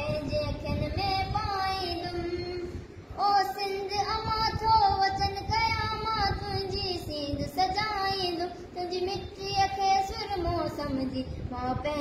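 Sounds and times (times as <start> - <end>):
boy singing unaccompanied: 0.0 - 12.0.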